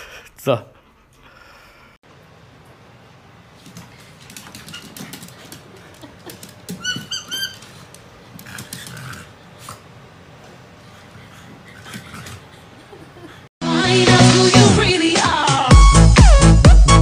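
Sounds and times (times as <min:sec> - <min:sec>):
squeaky toy ball squeaking: 0:06.7 - 0:07.7.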